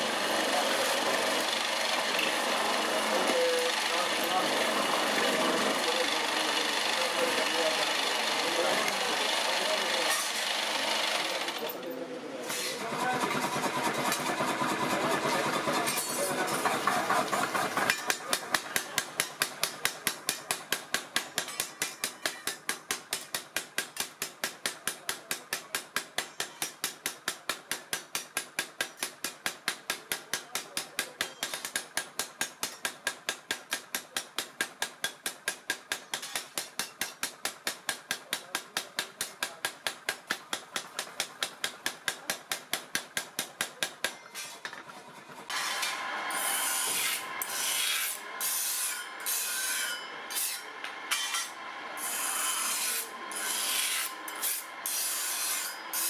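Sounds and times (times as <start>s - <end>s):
bench grinder grinding steel: 0.0s - 11.7s, 44.2s - 56.0s
power hammer striking steel: 12.5s - 44.6s, 45.5s - 56.0s.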